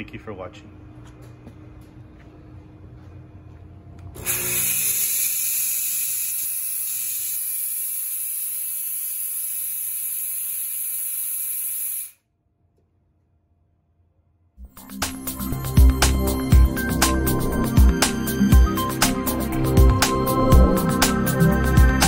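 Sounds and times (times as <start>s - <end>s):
fog machine hissing: 4.2s - 12.2s.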